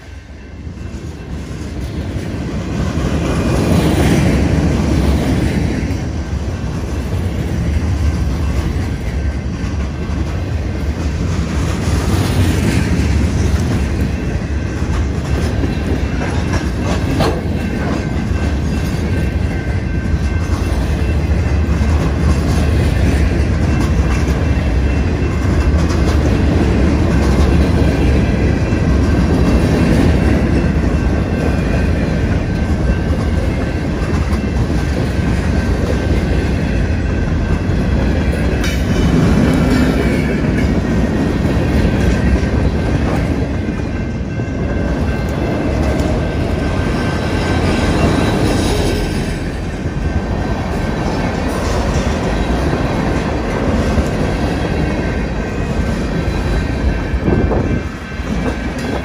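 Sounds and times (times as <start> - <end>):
freight train wheels rumbling: 0.0 - 59.0
wheels clickety-clack on rail joints: 0.0 - 59.0.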